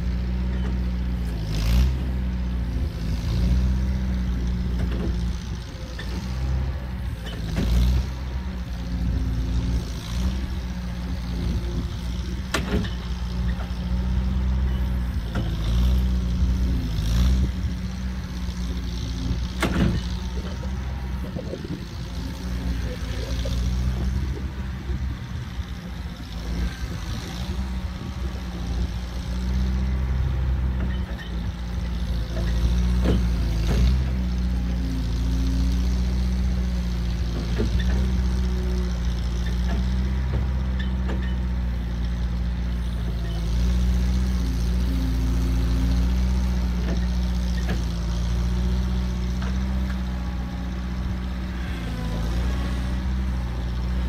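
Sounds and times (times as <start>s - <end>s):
loader engine running: 0.0s - 54.0s.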